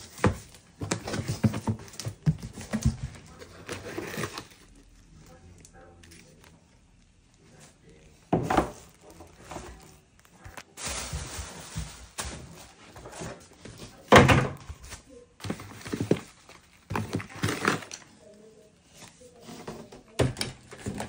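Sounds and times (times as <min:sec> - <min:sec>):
packaging rustling: 0:08.7 - 0:13.6.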